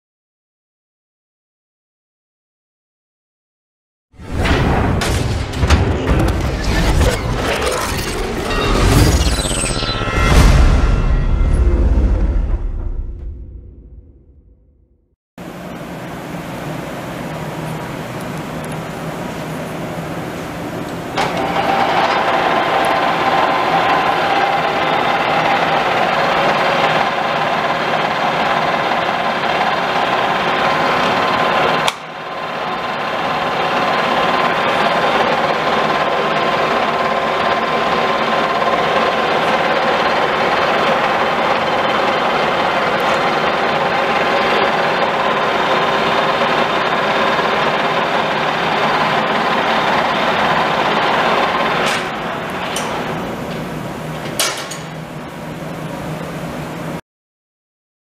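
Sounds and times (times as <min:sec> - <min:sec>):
lathe gears whining: 0:04.2 - 0:11.7, 0:21.0 - 0:55.2
dense mechanical hum: 0:04.2 - 0:14.7, 0:15.4 - 0:57.0.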